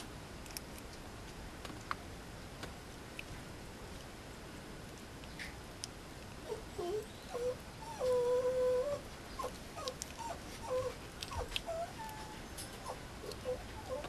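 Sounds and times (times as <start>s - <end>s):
puppy whining: 6.4s - 14.0s.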